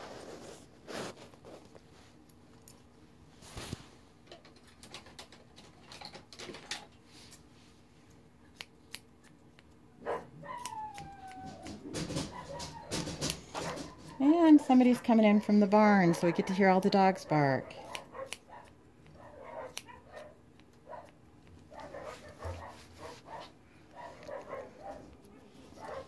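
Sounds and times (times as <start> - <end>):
shears snipping hair: 8.5 - 9.8, 10.4 - 26.0
dog whining: 10.0 - 14.3.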